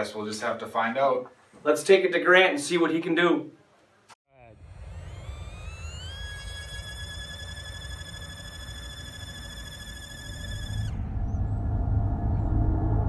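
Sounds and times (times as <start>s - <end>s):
toy drone motors whining: 4.5s - 10.9s
wind rumble on microphone: 10.9s - 13.0s.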